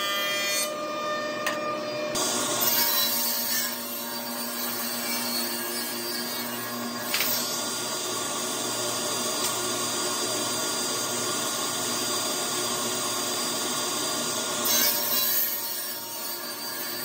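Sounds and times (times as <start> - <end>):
table saw whining: 0.0 - 17.0.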